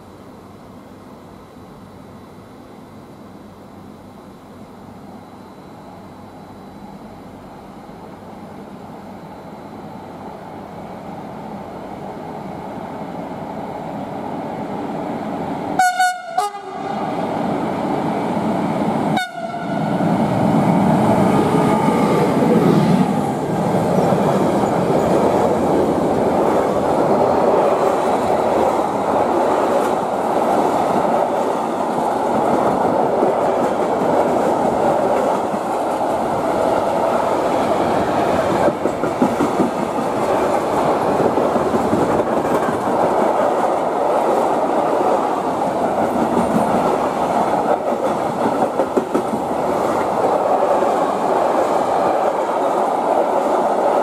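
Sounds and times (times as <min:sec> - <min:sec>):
train passing: 0:00.0 - 0:54.0
train horn blasts: 0:15.8 - 0:17.1, 0:19.1 - 0:20.0
wheels clattering on rails: 0:38.1 - 0:54.0.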